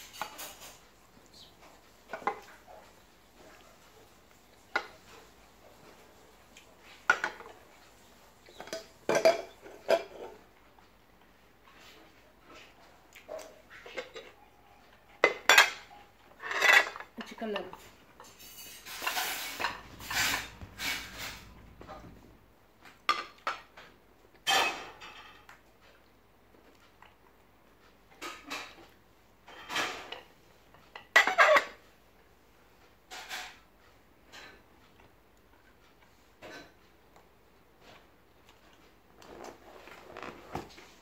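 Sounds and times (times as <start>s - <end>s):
dishes clinking and knocking: 0.0s - 0.8s, 7.1s - 7.6s, 8.5s - 10.4s, 15.2s - 22.3s, 23.1s - 25.5s, 30.9s - 31.8s
dishes scraping on table: 0.0s - 0.8s, 17.7s - 22.3s.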